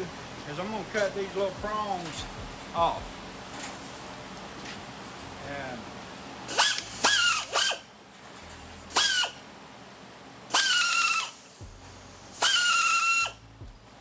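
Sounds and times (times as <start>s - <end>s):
metal cutter shearing wire: 6.5s - 7.9s, 12.4s - 13.4s
short high squeal: 6.5s - 7.9s, 8.9s - 9.4s, 10.5s - 11.5s, 12.3s - 13.4s.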